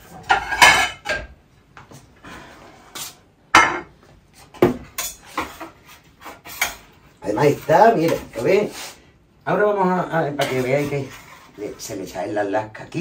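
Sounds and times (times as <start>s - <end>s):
plates and utensils clattering: 0.0s - 1.4s, 3.0s - 4.0s
utensils scraping plates: 5.0s - 6.9s.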